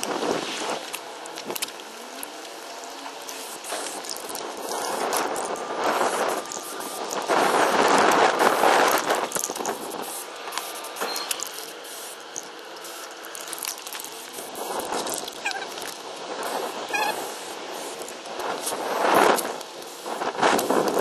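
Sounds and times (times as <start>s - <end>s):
spray paint can hissing: 0.0s - 21.0s.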